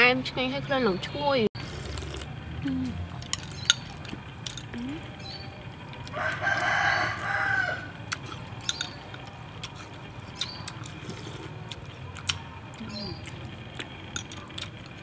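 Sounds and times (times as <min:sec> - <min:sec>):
rooster crowing: 0:06.0 - 0:08.0
spoons clicking against bowls: 0:08.6 - 0:09.8, 0:14.1 - 0:14.9.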